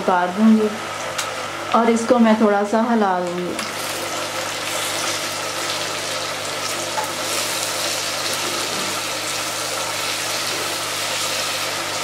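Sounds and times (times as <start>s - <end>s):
food sizzling in a pan: 3.6s - 12.0s.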